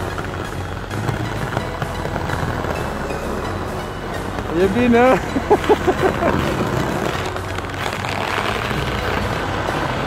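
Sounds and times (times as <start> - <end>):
person laughing: 5.2 - 6.7.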